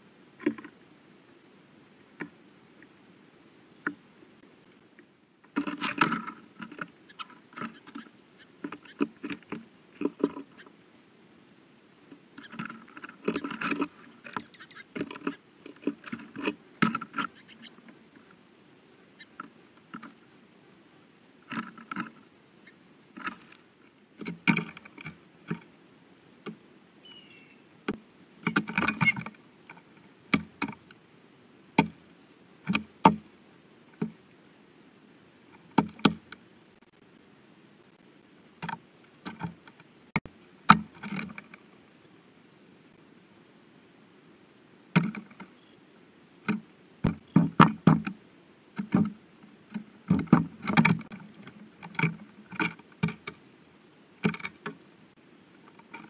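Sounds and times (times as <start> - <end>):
birds pecking on wooden feeder: 5.4 - 10.8, 12.0 - 18.4, 19.2 - 20.4, 21.4 - 25.7, 27.9 - 31.0, 45.0 - 45.6, 48.8 - 53.5, 54.2 - 56.0.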